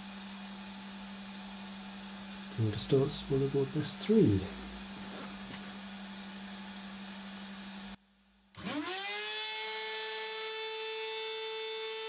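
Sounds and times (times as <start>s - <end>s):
steady low hum: 0.0s - 8.5s
router spindle whine: 8.6s - 12.0s.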